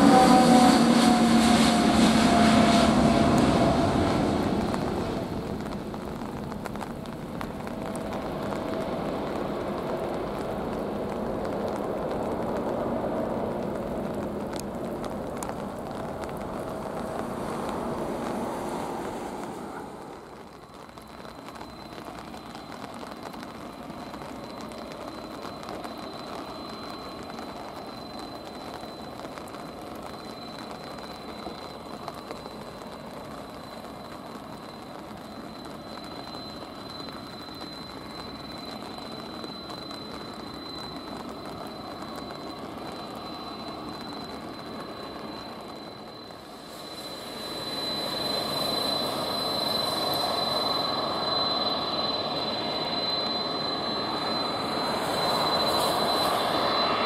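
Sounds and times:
high thin engine whine: 0.0s - 6.2s, 43.2s - 57.0s
jet engines at takeoff thrust: 0.0s - 57.0s
jet engines rumbling near idle: 0.0s - 57.0s.

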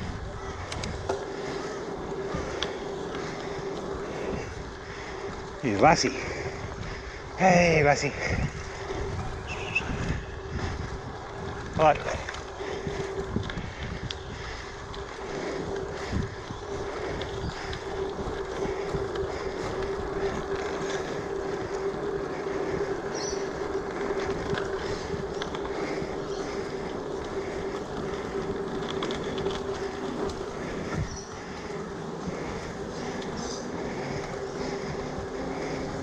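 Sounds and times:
bike tyres on pavement: 0.0s - 36.0s
wind over microphone: 0.0s - 36.0s
steady hum: 8.1s - 36.0s.

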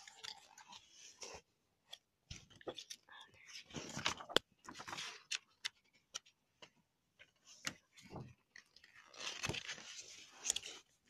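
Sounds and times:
page turning rustle: 3.6s - 5.8s, 7.4s - 11.0s.

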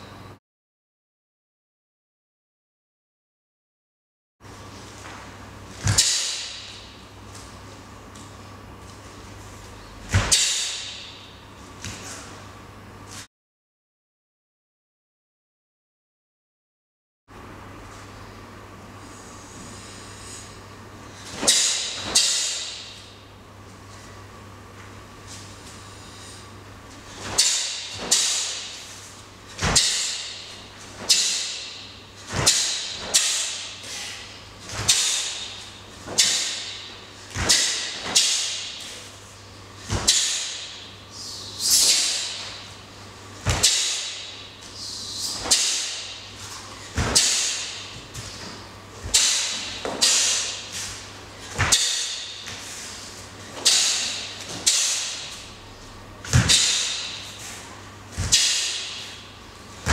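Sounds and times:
low steady hum: 17.4s - 59.9s
uniform snapping and swishing: 27.1s - 40.9s, 41.5s - 42.8s, 43.4s - 55.6s, 56.3s - 59.2s.

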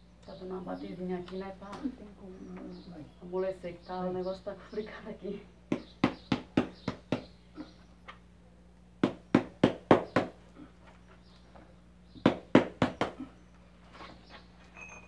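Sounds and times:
sharp knocks on flower pot: 12.2s - 13.2s.

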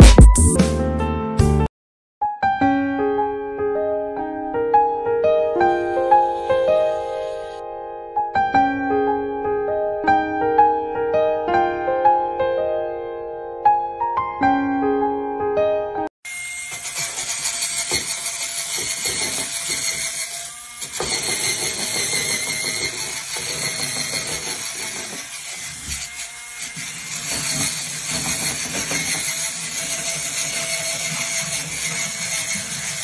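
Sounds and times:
bristles scrubbing tile: 20.8s - 33.0s.

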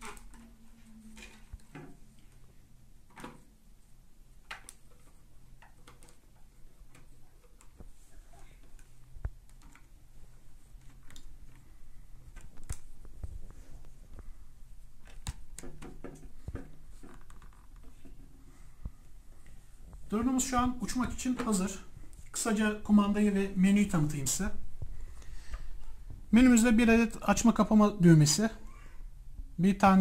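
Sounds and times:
plastic clicks and knocks: 15.0s - 18.3s.

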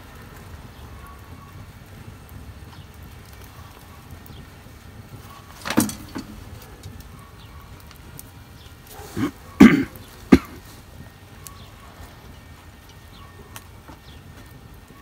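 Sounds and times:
knocks and clatters: 5.5s - 7.0s.

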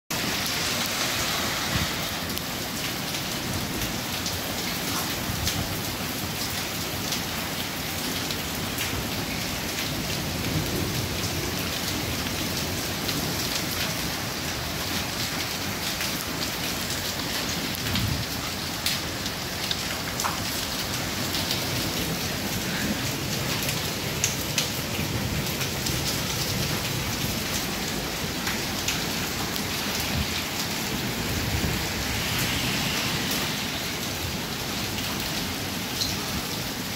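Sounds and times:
rain hissing: 0.1s - 5.3s, 15.4s - 36.9s.

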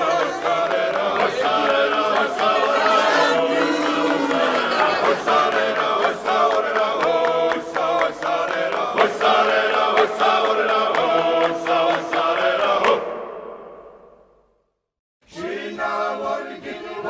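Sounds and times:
group singing chant-like song: 0.0s - 14.0s, 15.3s - 17.0s.

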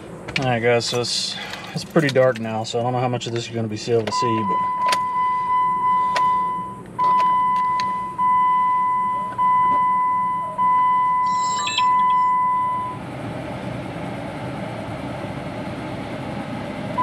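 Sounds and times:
car warning chime: 4.1s - 13.0s.

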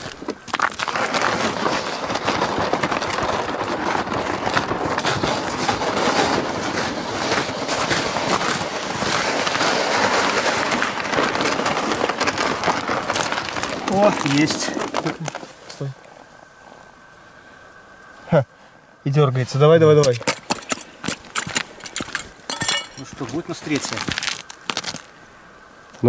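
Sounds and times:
footsteps crunching on snow: 0.0s - 15.7s, 21.0s - 25.1s.

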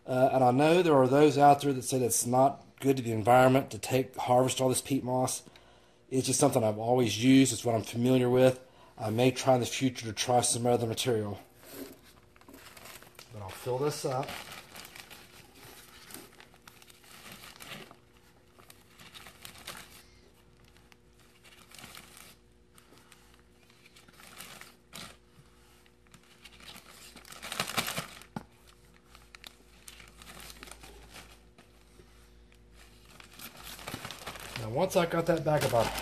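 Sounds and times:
plastic bag crinkling: 9.3s - 36.0s.

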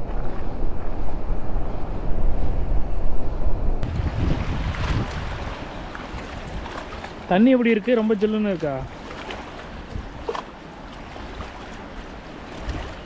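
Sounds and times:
wind rumbling on microphone: 0.0s - 13.0s
river water running past rocks: 3.8s - 13.0s.

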